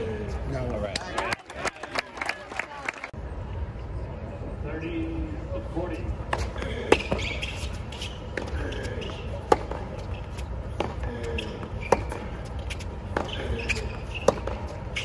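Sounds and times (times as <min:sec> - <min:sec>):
tennis racket hitting ball: 0:08.0 - 0:10.1, 0:10.7 - 0:15.0.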